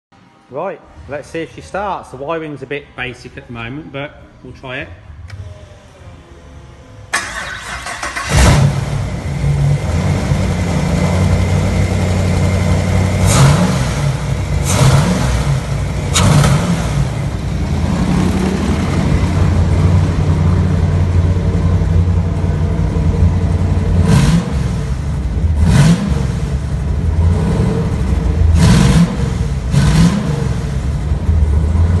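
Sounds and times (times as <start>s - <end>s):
car engine idling and revving: 7.1s - 32.0s.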